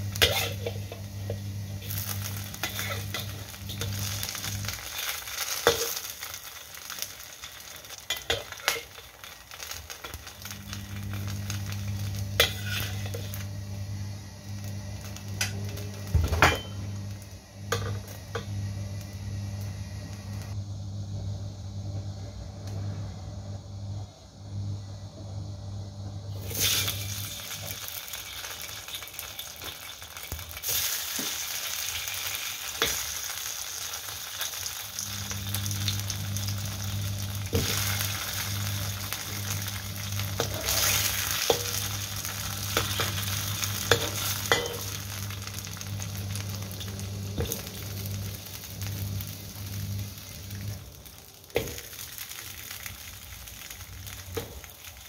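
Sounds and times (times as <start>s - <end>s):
steady low hum: 0.0s - 5.0s, 10.0s - 27.8s, 35.0s - 51.9s
cake frying in hot oil: 0.0s - 20.6s, 26.3s - 55.0s.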